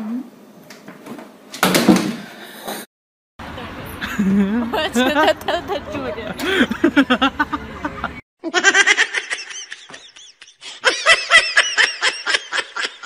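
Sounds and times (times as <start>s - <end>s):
person laughing high-pitched: 4.0s - 13.0s.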